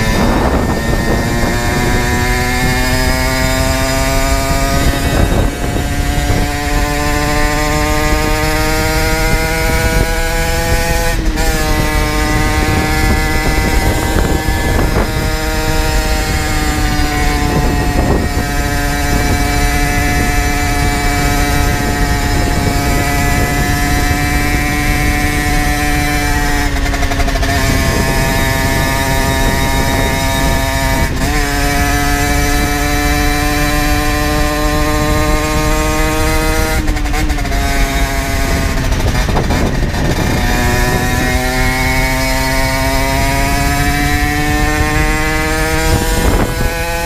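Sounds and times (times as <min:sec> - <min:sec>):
low wind rumble: 0:00.0 - 0:47.0
two-stroke engine running: 0:00.0 - 0:47.0.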